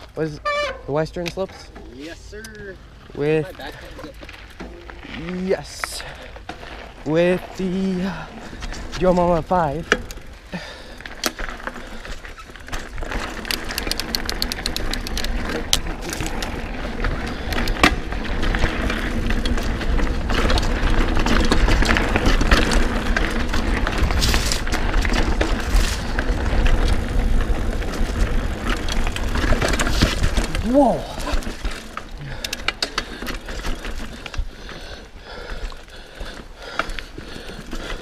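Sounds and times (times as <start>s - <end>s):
bike tyres on dirt trail: 0.0s - 38.0s
sharp clicks: 13.4s - 16.5s.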